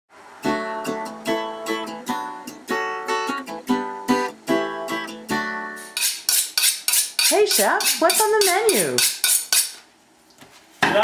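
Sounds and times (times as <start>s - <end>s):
acoustic guitar strumming: 0.4s - 9.0s.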